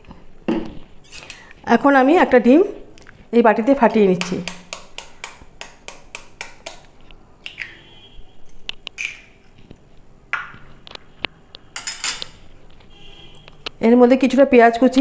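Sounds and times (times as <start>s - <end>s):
egg shell cracking: 8.7s - 9.3s.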